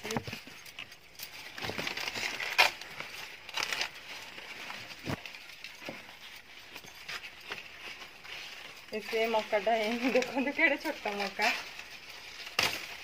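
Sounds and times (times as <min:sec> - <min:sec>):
corn leaves rustling: 0:00.0 - 0:13.0
corn ear snapping off stalk: 0:12.5 - 0:13.0.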